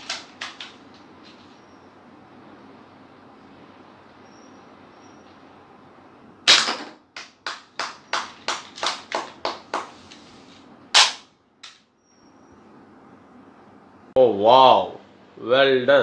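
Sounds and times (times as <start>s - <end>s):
toy pistol sharp shots: 6.5s - 7.0s, 11.0s - 11.3s
toy pistol loud crack: 6.5s - 9.3s, 10.9s - 11.8s.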